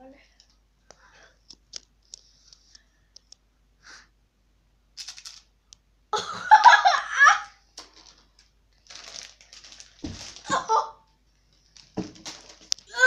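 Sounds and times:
boy laughing loudly: 0:06.2 - 0:07.6, 0:10.5 - 0:11.0.

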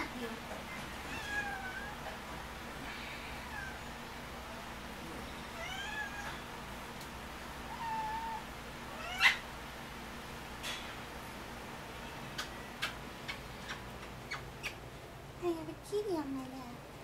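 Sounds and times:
cat meowing: 0:01.0 - 0:02.1, 0:05.5 - 0:06.4, 0:07.7 - 0:09.4.

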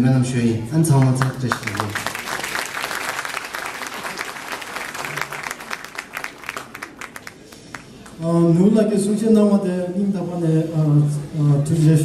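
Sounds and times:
audience applauding: 0:01.0 - 0:08.2.

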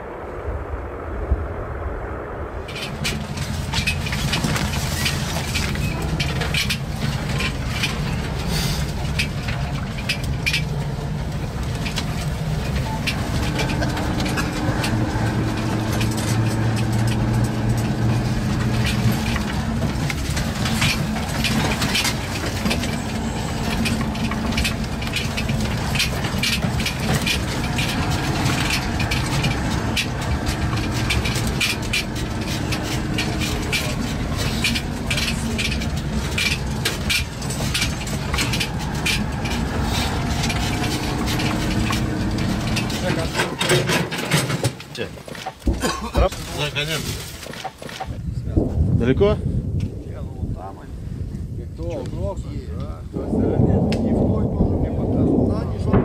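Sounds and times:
vehicle engine running: 0:02.3 - 0:44.5
vehicle body rattling and knocking: 0:02.7 - 0:50.8, 0:51.8 - 0:56.0.

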